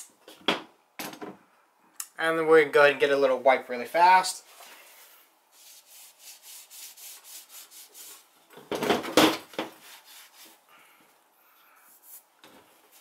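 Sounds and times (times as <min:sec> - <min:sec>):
cloth wiping metal: 0:05.5 - 0:08.4, 0:09.7 - 0:10.6
heavy rubbing and handling: 0:09.4 - 0:10.6.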